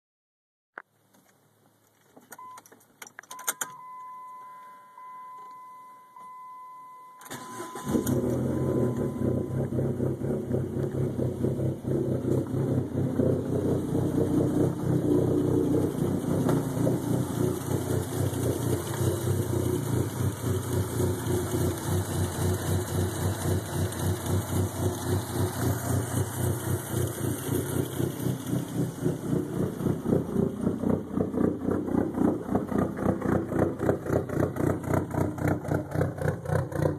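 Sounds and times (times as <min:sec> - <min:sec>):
car engine cranking and idling: 0:00.8 - 0:36.9
electronic car chime: 0:02.4 - 0:10.0.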